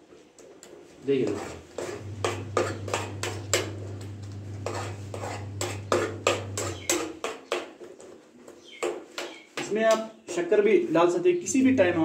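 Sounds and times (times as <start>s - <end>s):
spoon scraping a steel pot: 1.1s - 7.4s.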